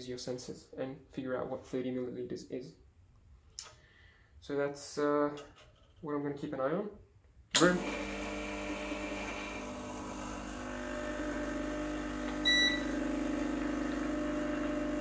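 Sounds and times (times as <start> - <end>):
espresso machine pump buzzing: 7.6 - 15.0
short beep: 12.4 - 13.0.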